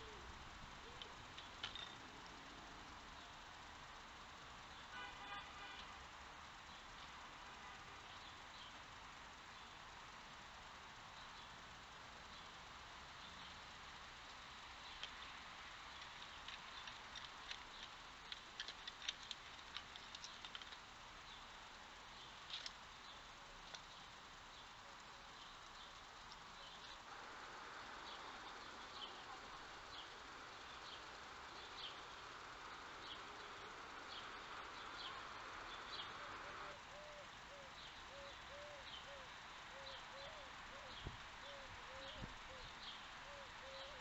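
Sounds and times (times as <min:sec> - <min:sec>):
microphone hiss: 0:00.0 - 0:44.0
fox chewing and crunching: 0:15.0 - 0:20.9.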